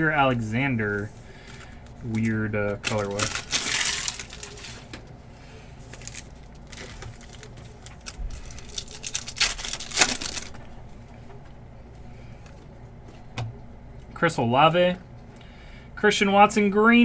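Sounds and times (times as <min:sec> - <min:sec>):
foil pack crinkling: 0:00.2 - 0:05.1, 0:05.8 - 0:10.8.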